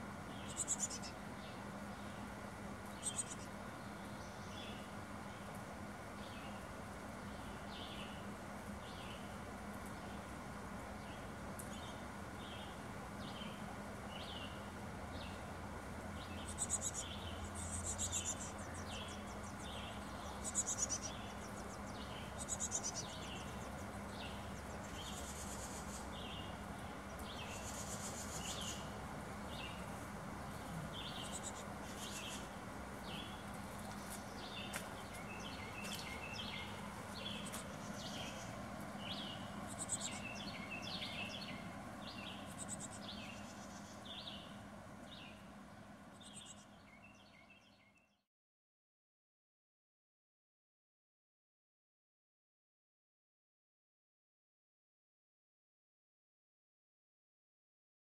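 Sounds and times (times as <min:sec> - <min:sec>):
steady low hum: 0:00.0 - 0:47.8
bird chirping: 0:00.3 - 0:02.2, 0:02.8 - 0:04.9, 0:16.2 - 0:45.5, 0:46.1 - 0:48.2
bird trilling: 0:00.5 - 0:01.1, 0:20.3 - 0:21.7, 0:22.3 - 0:23.6.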